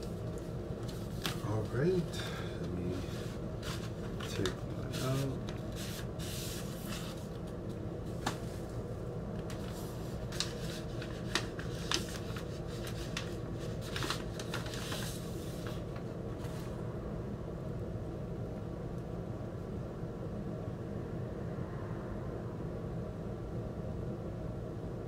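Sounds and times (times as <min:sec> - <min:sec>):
steady low hum: 0:00.0 - 0:25.0
paper sleeve rustling: 0:00.8 - 0:01.9, 0:02.9 - 0:07.4, 0:09.4 - 0:16.8.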